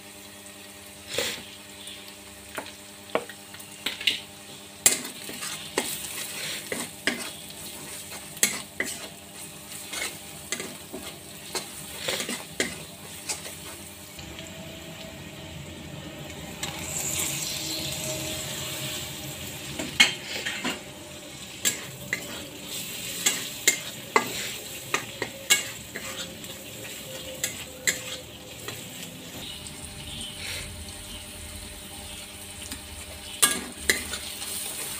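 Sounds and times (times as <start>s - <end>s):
onions sizzling in oil: 0.0s - 34.9s
metal spatula scraping and clinking: 8.1s - 9.1s, 9.7s - 13.8s, 20.0s - 20.8s, 21.6s - 29.0s.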